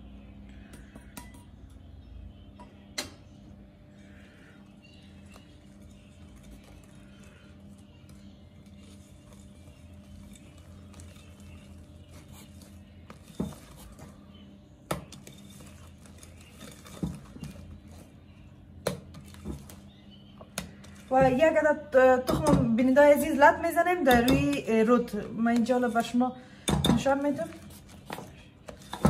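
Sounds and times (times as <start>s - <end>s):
steady low hum: 0.0s - 29.0s
whisk scraping glass bowl: 5.2s - 14.1s, 15.1s - 18.1s.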